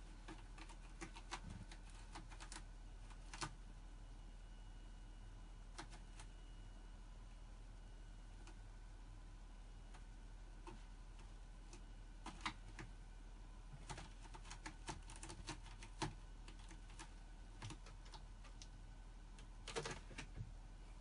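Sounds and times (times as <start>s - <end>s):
cat claws scratching rope: 13.8s - 18.6s.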